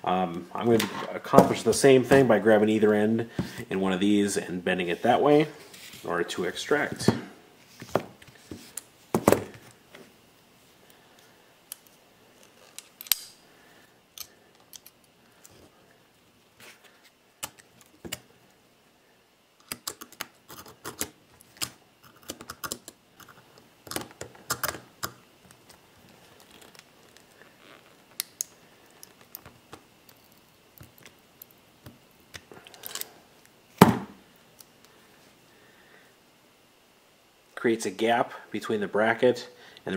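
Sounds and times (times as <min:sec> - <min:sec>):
pliers clicking and scraping on metal: 0:11.7 - 0:13.4.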